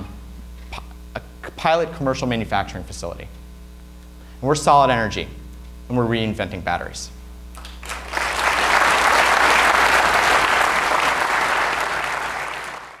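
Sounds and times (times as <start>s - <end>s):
audience applauding: 7.6s - 13.0s.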